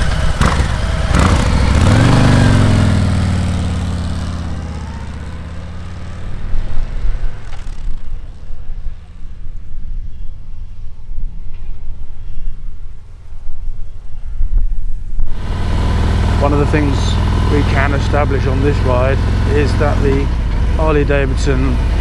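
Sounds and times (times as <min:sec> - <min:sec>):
motorcycle revving and riding off: 0:00.0 - 0:09.6, 0:15.3 - 0:22.0.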